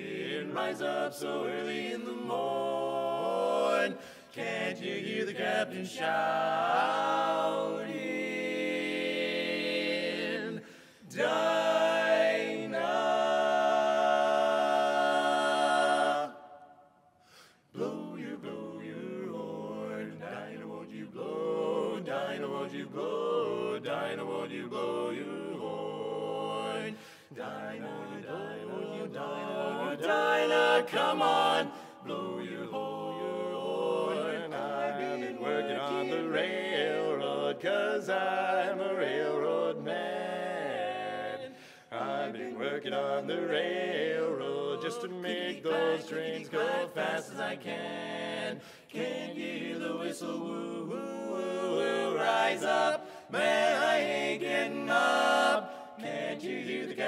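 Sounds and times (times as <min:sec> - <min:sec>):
male quartet singing a cappella: 0:00.0 - 0:16.7, 0:17.3 - 0:57.0.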